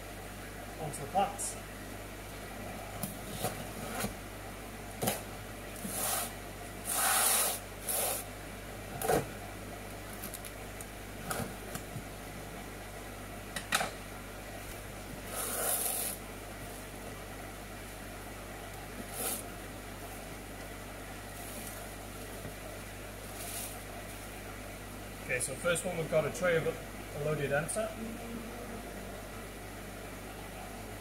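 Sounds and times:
cardboard flaps scraping: 3.0s - 4.2s.

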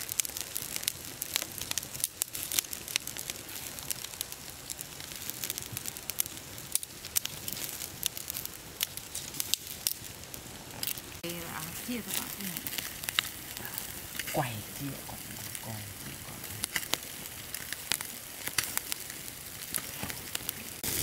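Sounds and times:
wood fire crackling and popping: 0.0s - 21.0s.

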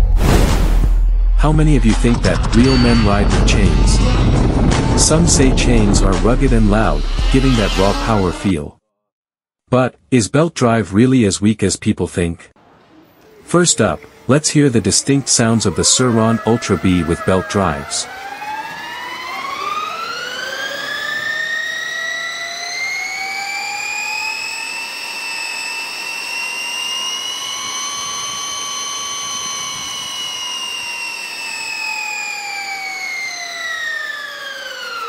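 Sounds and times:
electric motor and belt whining: 2.0s - 8.6s, 13.2s - 35.0s.

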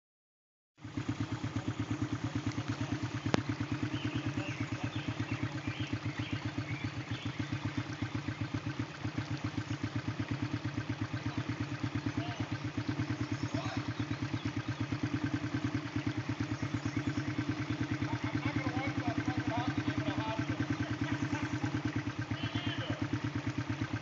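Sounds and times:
atv engine idling: 0.8s - 24.0s
sharp click: 3.2s - 3.5s.

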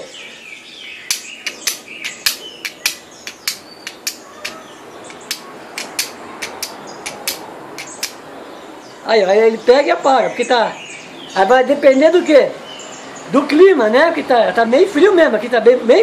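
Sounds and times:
flint struck with steel: 1.1s - 8.2s.

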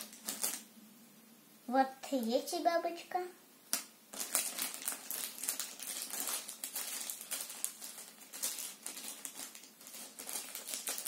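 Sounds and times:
plastic bag crinkling: 0.0s - 0.7s, 3.7s - 11.0s.

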